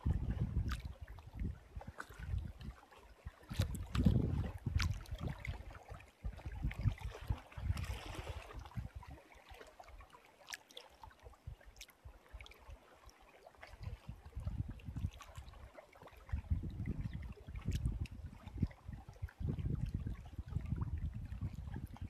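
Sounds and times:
wind buffeting microphone: 0:00.0 - 0:09.2, 0:13.8 - 0:15.6, 0:16.2 - 0:22.0
small waves lapping and splashing: 0:00.0 - 0:22.0
water ticks: 0:03.5 - 0:05.6, 0:11.7 - 0:12.0, 0:17.6 - 0:18.2.

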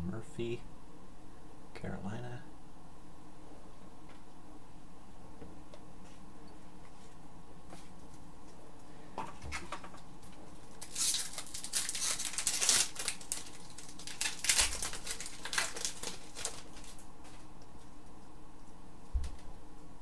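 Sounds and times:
paper cards flicking and rustling: 0:09.2 - 0:17.5.

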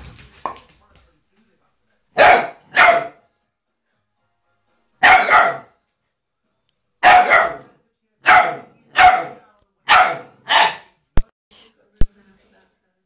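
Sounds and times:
puppy barking: 0:02.2 - 0:03.2, 0:05.0 - 0:05.8, 0:07.0 - 0:10.9.

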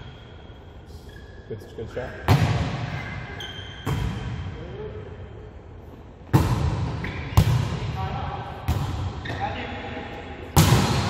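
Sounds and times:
volleyball smacks echoing: 0:02.2 - 0:02.9, 0:06.3 - 0:08.0, 0:10.5 - 0:11.0.

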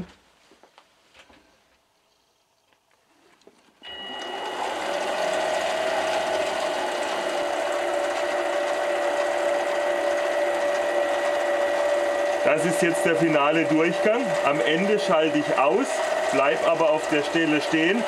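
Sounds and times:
lathe motor whining: 0:03.8 - 0:18.0.

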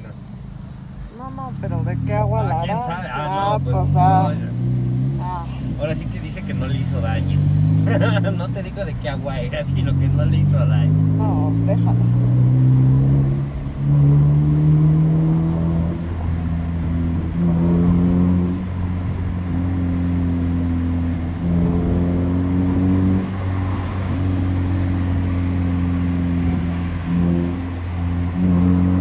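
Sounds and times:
car engine droning: 0:00.0 - 0:29.0.

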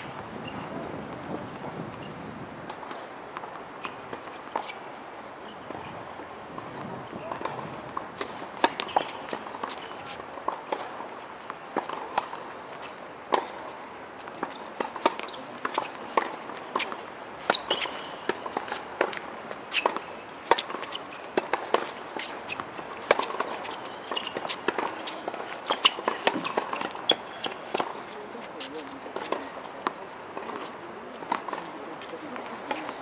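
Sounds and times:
players' footsteps: 0:06.5 - 0:33.0
tennis ball bounces: 0:06.6 - 0:33.0
tennis racket strikes: 0:14.4 - 0:30.7.

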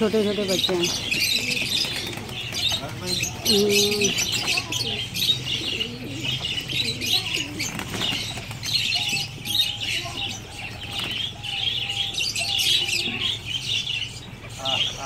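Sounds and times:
high chirping of birds: 0:00.0 - 0:15.0
pigeons flapping wings: 0:00.8 - 0:03.2, 0:07.3 - 0:08.8.

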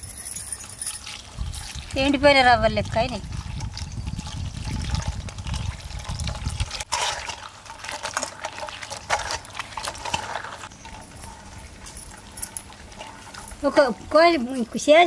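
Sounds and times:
water sloshing and splashing: 0:00.6 - 0:15.0.

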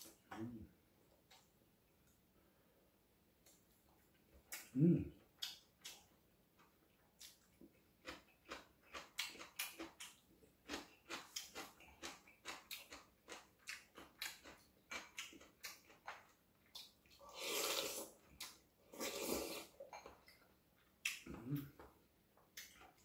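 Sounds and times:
chewing and wet mouth clicks: 0:05.4 - 0:17.2
slurping soup: 0:17.2 - 0:18.2, 0:18.8 - 0:19.8.

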